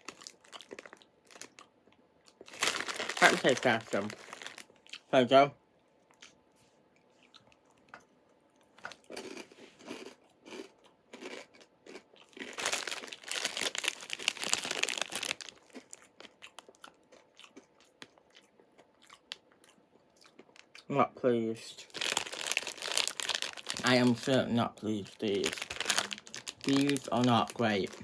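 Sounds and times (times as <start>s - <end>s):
person chewing crunchy snack: 0.0s - 5.1s, 8.6s - 20.9s, 21.8s - 24.0s, 25.3s - 28.0s.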